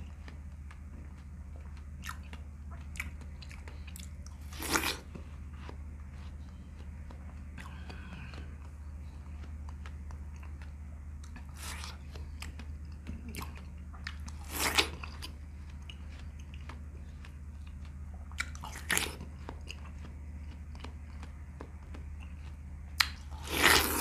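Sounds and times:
chewing watermelon: 0.0 - 24.0
low hum: 0.0 - 24.0
crunchy bites: 2.0 - 5.7, 13.4 - 22.4, 23.0 - 24.0.

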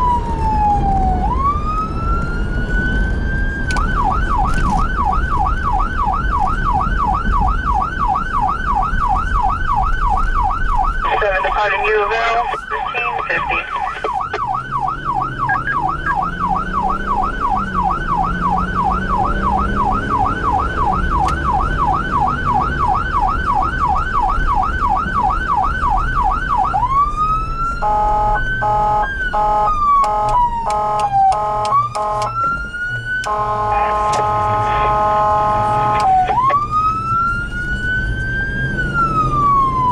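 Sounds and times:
siren wailing: 0.0 - 39.9
electronic siren yelping: 3.8 - 27.1, 27.8 - 39.9
vehicle horn blasts: 27.9 - 32.3, 33.3 - 36.1.

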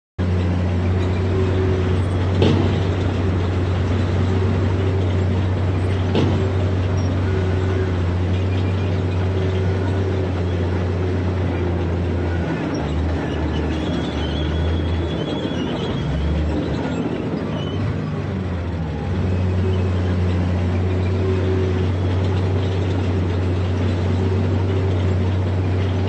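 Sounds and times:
heavy diesel engine running: 0.2 - 26.0
sharp knocks: 2.3 - 3.5, 6.0 - 6.8.

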